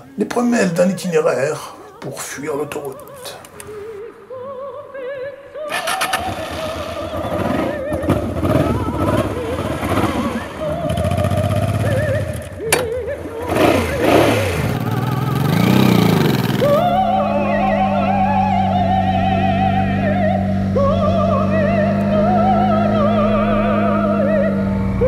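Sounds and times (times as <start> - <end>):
wavering theremin-like melody: 5.6 - 15.9, 16.6 - 25.0
motorcycle engine revving: 5.7 - 25.0
sharp click: 12.7 - 13.0.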